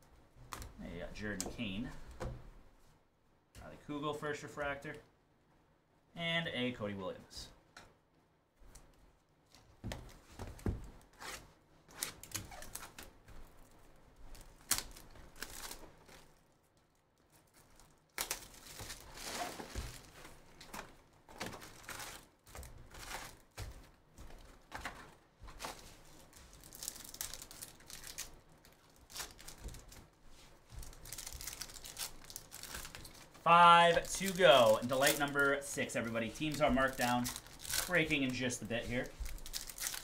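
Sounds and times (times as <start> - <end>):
crinkling of wrap and cardboard: 8.6 - 40.0
wrapper tearing: 11.2 - 20.2, 26.3 - 30.1, 30.8 - 40.0.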